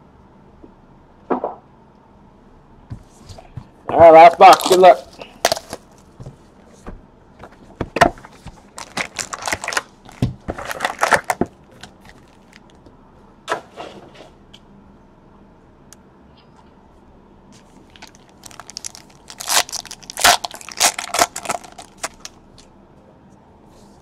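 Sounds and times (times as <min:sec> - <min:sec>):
wrappers crinkling: 0:04.0 - 0:06.1, 0:08.2 - 0:12.8, 0:17.6 - 0:22.6.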